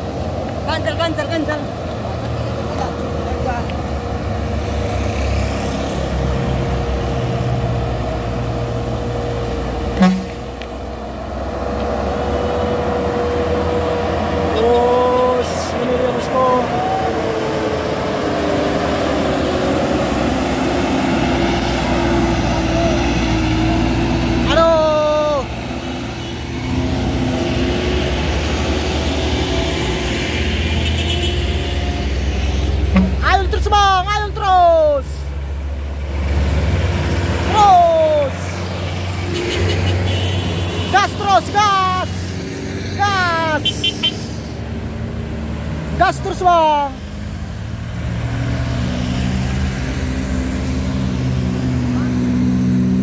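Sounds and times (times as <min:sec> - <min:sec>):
cars driving past: 0:00.0 - 0:53.0
diesel trucks running: 0:00.0 - 0:53.0
horn toot: 0:10.0 - 0:10.5, 0:30.8 - 0:31.8, 0:32.9 - 0:33.3, 0:39.3 - 0:41.2.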